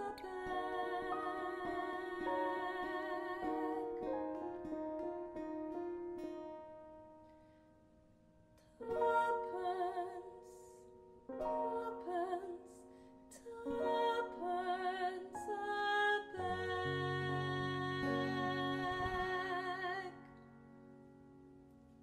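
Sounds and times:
woman singing ballad: 0.0 - 4.7, 8.8 - 20.3
acoustic guitar: 0.0 - 7.6, 13.8 - 21.8
piano: 0.0 - 22.0.

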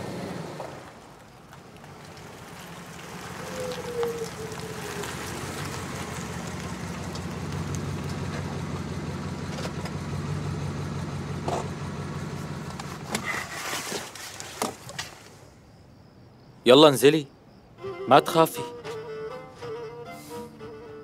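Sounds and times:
car engine humming: 0.0 - 13.6.

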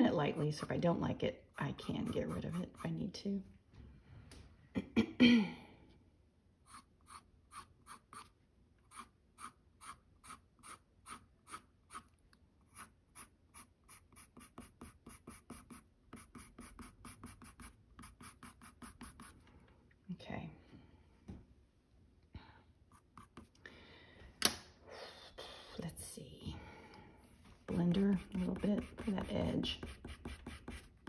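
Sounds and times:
colored pencil scratching on paper: 0.0 - 3.1, 6.7 - 8.3, 8.9 - 12.1, 12.7 - 19.4, 22.9 - 23.5, 27.6 - 31.0.

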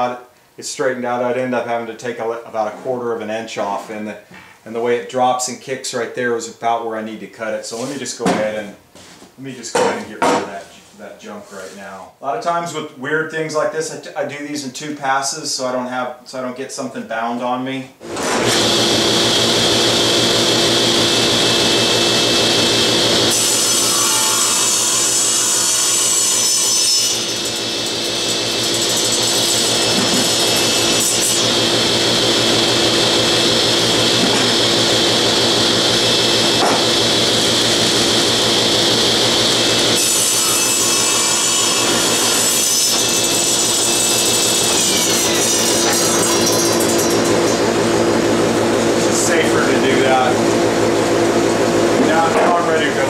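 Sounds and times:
table saw cutting wood: 18.0 - 53.0.

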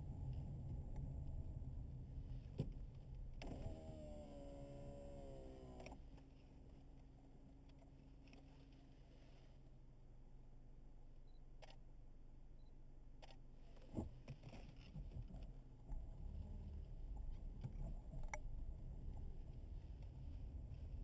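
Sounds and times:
car rumble from inside cabin: 0.0 - 6.2, 13.8 - 21.0.

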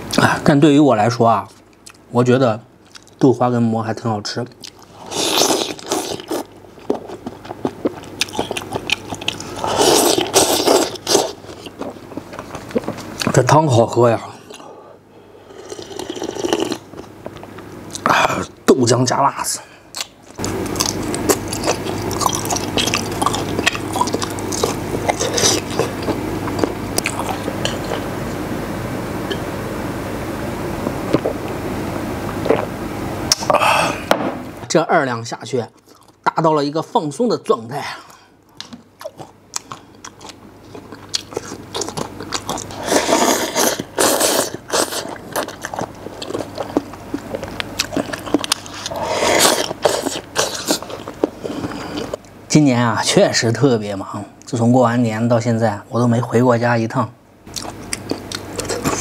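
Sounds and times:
steady low hum: 0.0 - 59.0
wet chewing: 4.5 - 13.4, 20.0 - 28.1, 38.6 - 52.3, 57.5 - 59.0
slurping: 4.6 - 13.4, 15.5 - 17.1, 20.4 - 28.1, 32.4 - 32.7, 39.6 - 52.2.

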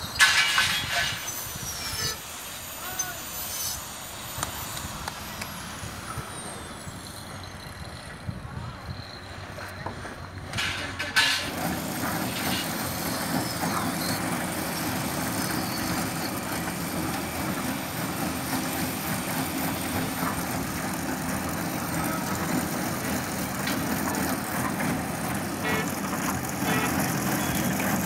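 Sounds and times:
concrete mixer humming: 0.0 - 28.0
concrete mixer motor clunk: 9.6 - 28.0.

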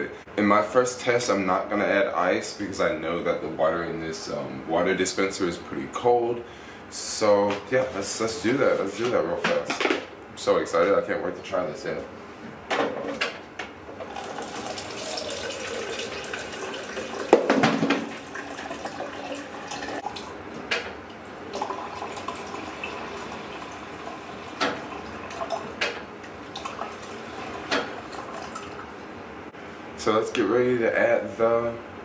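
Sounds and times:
water running into a cup: 14.0 - 20.3, 21.4 - 28.9.

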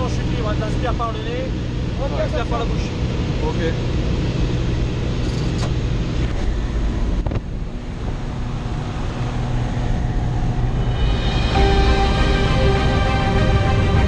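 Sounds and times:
light aircraft engine drone: 0.0 - 14.0
wind rushing through open door: 1.0 - 11.5
background music: 10.8 - 14.0.

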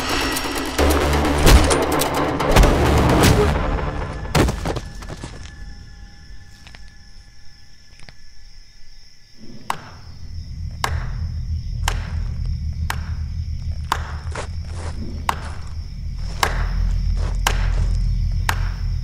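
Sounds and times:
low droning bass: 0.0 - 4.4, 10.3 - 19.0.

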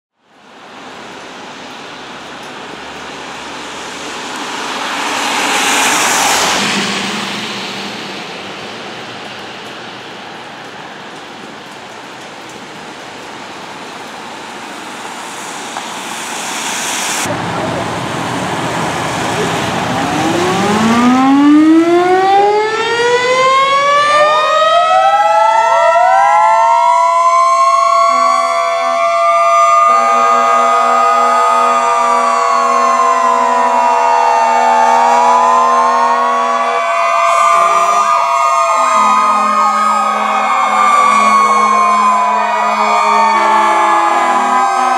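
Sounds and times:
tyres hissing on wet road: 0.2 - 21.8, 26.4 - 44.9
low horn blasts: 19.4 - 24.6, 27.6 - 44.9
mechanical sirens winding up: 20.0 - 44.9.

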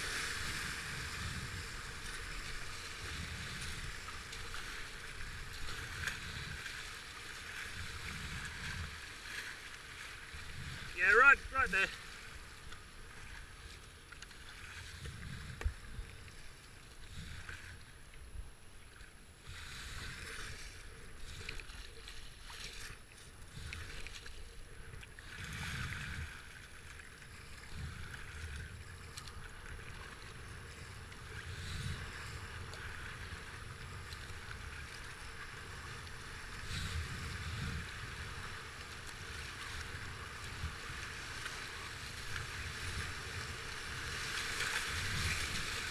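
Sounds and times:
wind on microphone: 0.0 - 6.9, 7.6 - 9.1, 29.8 - 45.9
paddle splashing: 0.0 - 45.9
whitewater rushing: 10.9 - 12.0.

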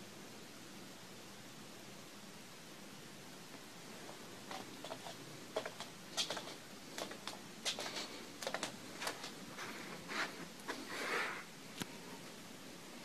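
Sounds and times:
faint hiss: 0.0 - 13.0
light clicks and taps: 4.5 - 9.4.

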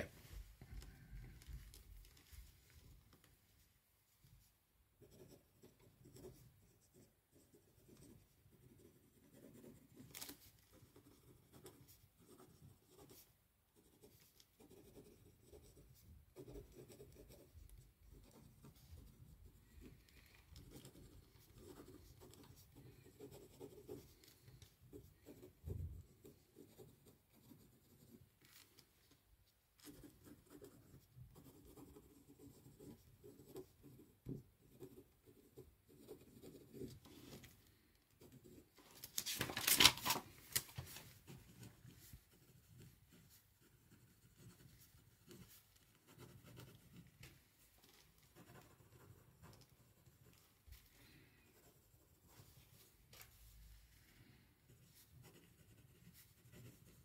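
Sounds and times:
pen scratching on paper: 5.0 - 28.3, 29.8 - 37.4, 41.1 - 47.3, 48.3 - 50.6, 54.6 - 57.0.

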